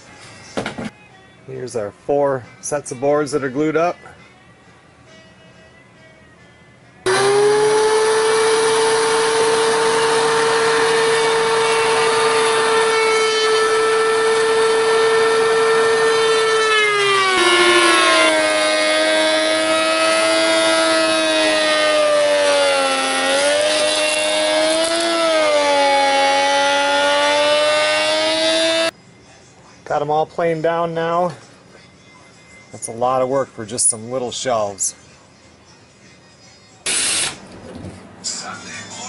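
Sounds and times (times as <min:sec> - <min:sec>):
thickness planer whining: 0:07.1 - 0:28.9.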